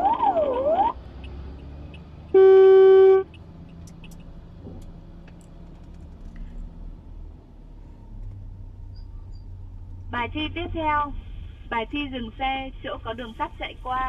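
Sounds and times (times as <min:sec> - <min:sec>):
electronic car alarm wailing: 0:00.0 - 0:01.0.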